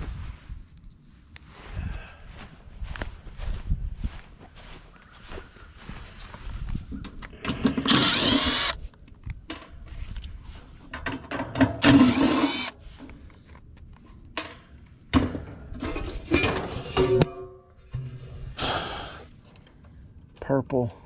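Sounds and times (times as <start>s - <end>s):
cordless drill whirring: 7.7s - 8.8s, 11.9s - 12.8s.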